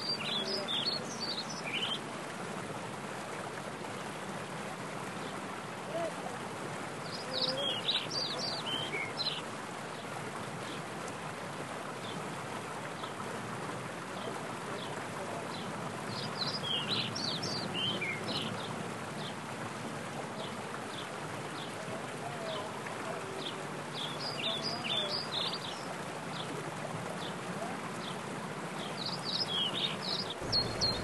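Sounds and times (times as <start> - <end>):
songbird singing: 0.0 - 2.2, 7.0 - 10.8, 14.1 - 19.4, 23.3 - 28.2, 28.8 - 31.0
stream rushing over boulders: 0.0 - 31.0.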